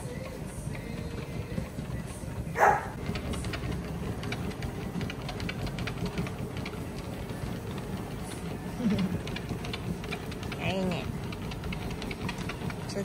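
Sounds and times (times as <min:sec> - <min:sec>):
dog paws tapping on belt: 0:00.0 - 0:13.0
treadmill humming: 0:00.0 - 0:13.0
dog barking: 0:02.6 - 0:03.0.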